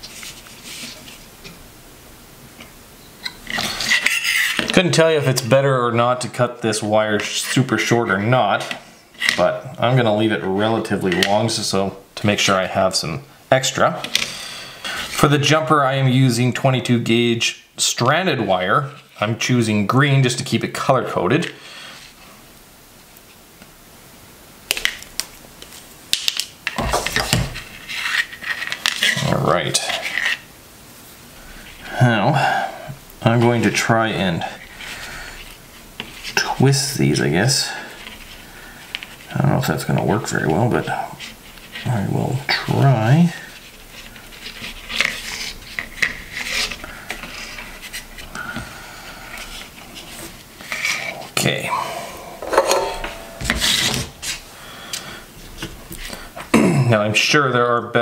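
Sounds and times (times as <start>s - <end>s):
tool and wire knocking and rubbing: 52.4s - 54.1s.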